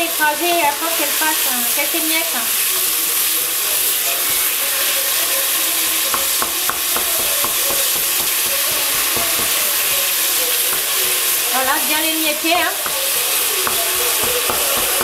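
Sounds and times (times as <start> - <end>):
meat sizzling in hot oil: 0.0 - 15.0
spoon stirring in pot: 12.8 - 15.0.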